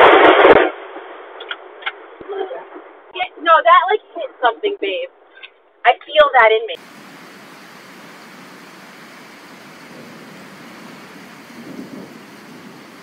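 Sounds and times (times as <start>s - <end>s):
rain hissing: 6.8s - 13.0s.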